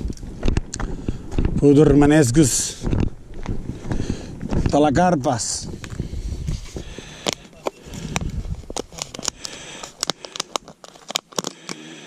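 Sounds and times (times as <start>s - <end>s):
plastic tub clicking and crackling: 7.2s - 12.0s.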